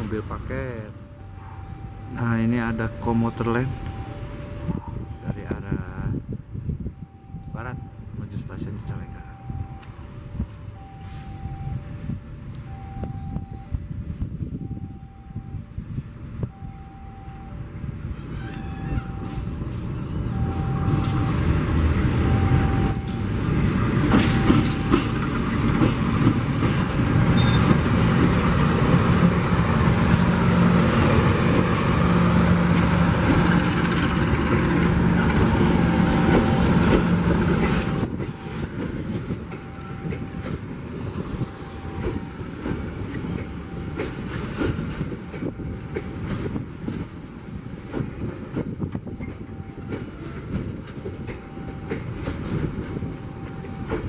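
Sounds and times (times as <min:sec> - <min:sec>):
diesel locomotive engine drone: 0:00.0 - 0:54.0
train wheels clacking on rail joints: 0:23.0 - 0:54.0.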